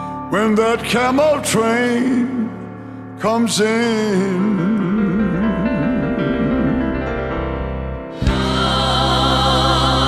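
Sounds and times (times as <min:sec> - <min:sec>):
grand piano: 0:00.0 - 0:10.0
man singing with vibrato: 0:00.3 - 0:07.1
band and backing singers: 0:08.0 - 0:10.0.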